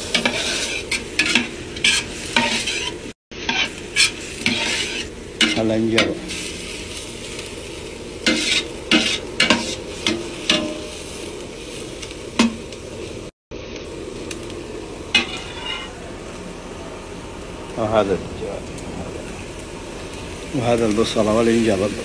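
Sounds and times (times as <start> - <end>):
metal spoon scraping a pot: 0.0 - 6.1, 8.2 - 10.8, 15.2 - 15.9
onions sizzling in oil: 0.0 - 22.0.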